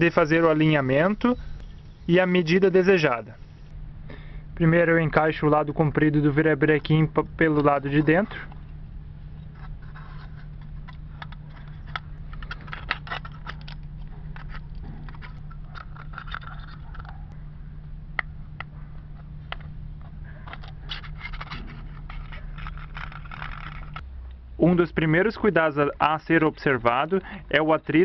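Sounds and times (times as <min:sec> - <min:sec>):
steady low hum: 0:00.0 - 0:28.0
wire scraping against can: 0:09.4 - 0:17.4, 0:20.3 - 0:24.0.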